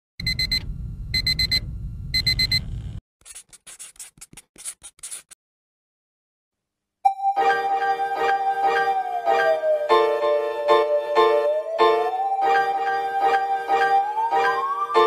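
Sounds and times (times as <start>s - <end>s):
digital alarm clock beeping: 0.2s - 0.6s, 1.2s - 1.6s, 2.2s - 2.6s.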